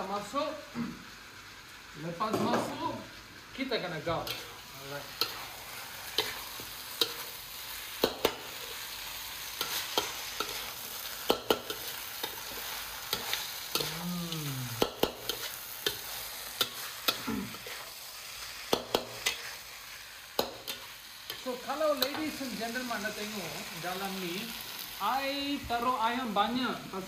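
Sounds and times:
rice sizzling in a wok: 0.0s - 27.0s
metal spatula scraping a wok: 4.2s - 14.0s, 15.0s - 23.7s.

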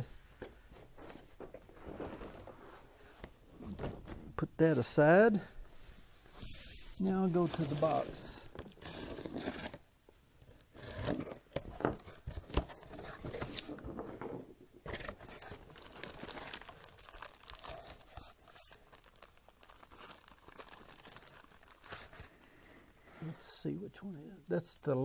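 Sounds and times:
plastic bags crinkling: 7.0s - 9.3s, 14.9s - 22.4s
tape tearing: 7.3s - 9.8s.

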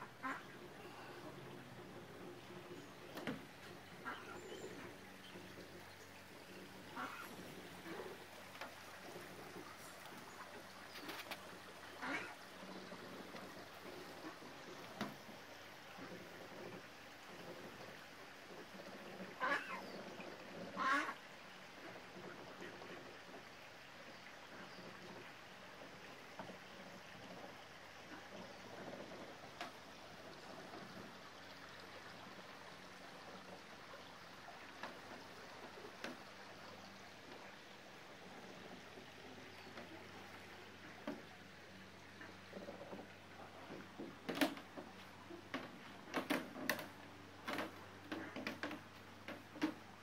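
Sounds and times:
faint outdoor background noise: 0.0s - 50.0s.

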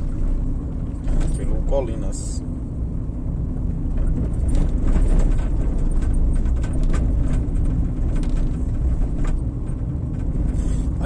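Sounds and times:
vehicle road and engine rumble: 0.0s - 11.0s.

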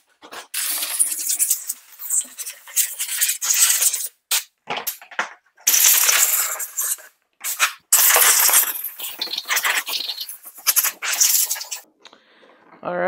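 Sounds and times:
compressed air blow gun hissing: 5.7s - 11.8s.

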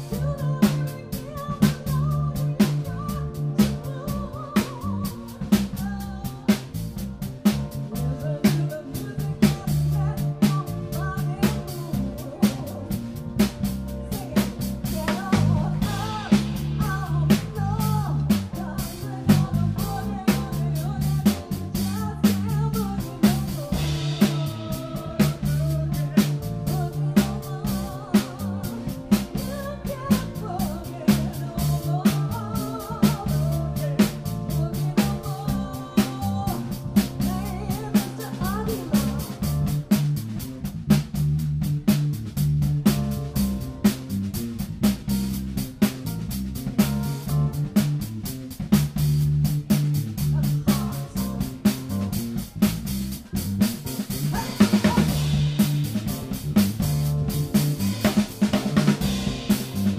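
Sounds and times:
woman singing: 0.0s - 39.8s, 50.3s - 52.0s, 54.3s - 56.4s
bass line: 0.0s - 59.9s
drum kit beat: 0.0s - 59.9s
piano: 0.0s - 59.9s.

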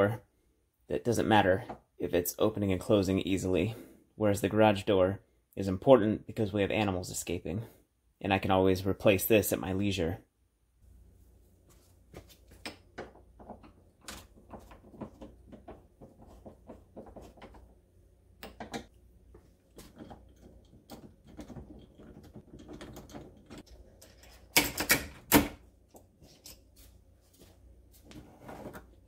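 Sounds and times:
metal clicks and rattles: 19.7s - 25.2s.

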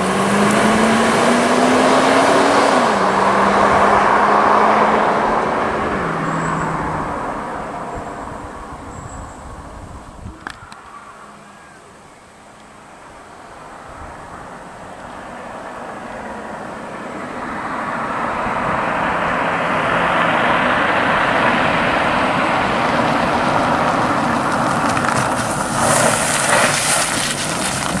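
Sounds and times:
car engine and tyre noise: 0.0s - 28.0s
tyres crunching over gravel: 22.2s - 28.0s.

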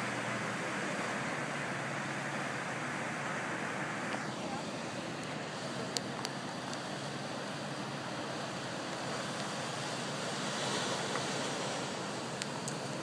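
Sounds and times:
surf breaking on rocks: 7.9s - 13.0s.

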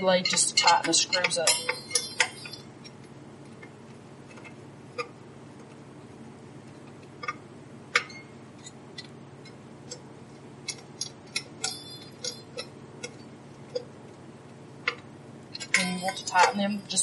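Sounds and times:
sharp metallic clinks: 0.3s - 2.6s, 11.6s - 12.7s.

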